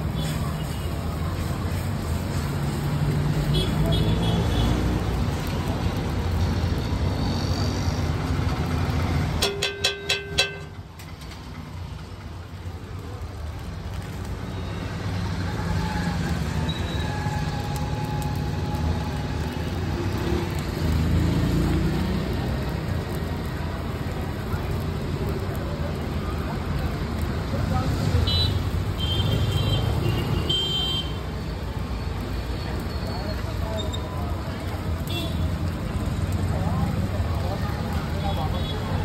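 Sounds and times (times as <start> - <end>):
roadside traffic noise: 0.0 - 39.0
sharp ringing taps: 9.4 - 10.7.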